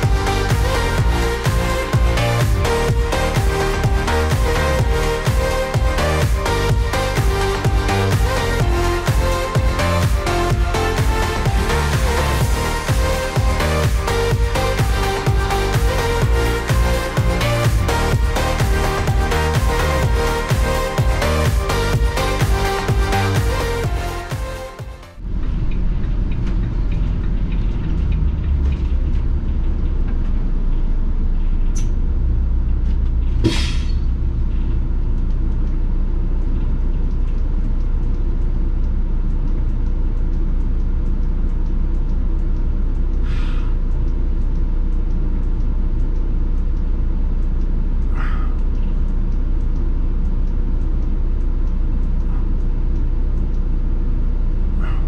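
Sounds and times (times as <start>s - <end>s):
bus diesel engine rumble: 0.0s - 55.0s
air brake hisses: 43.2s - 43.8s.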